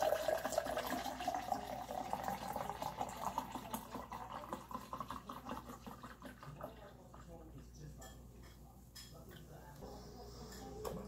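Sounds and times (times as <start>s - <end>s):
liquid pouring into a glass: 0.0s - 7.4s.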